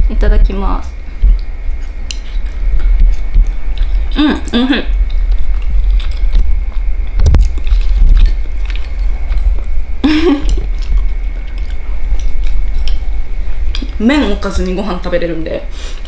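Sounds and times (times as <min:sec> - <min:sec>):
steady low rumble: 0:00.0 - 0:16.0
person chewing: 0:01.2 - 0:14.0.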